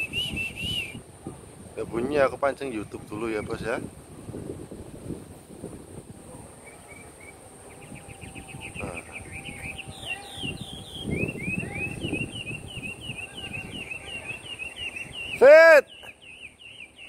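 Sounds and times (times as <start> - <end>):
bird song with whistled notes: 0.0 - 1.0, 6.6 - 17.0.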